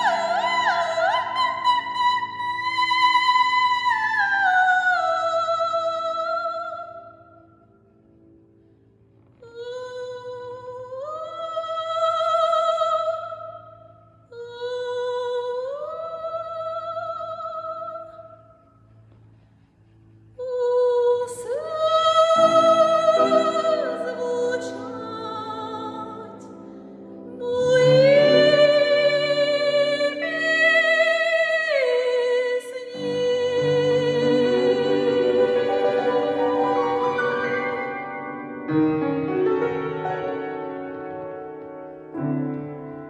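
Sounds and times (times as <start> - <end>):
soprano singing with vibrato: 0.0 - 7.2, 9.4 - 13.7, 14.3 - 18.3, 20.4 - 26.5, 27.3 - 38.5
grand piano accompaniment: 18.7 - 43.0.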